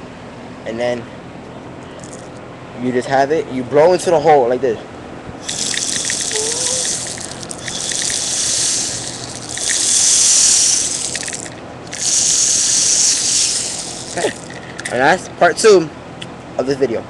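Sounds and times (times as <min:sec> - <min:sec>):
breath puffs blown into bottle: 0:05.4 - 0:14.6.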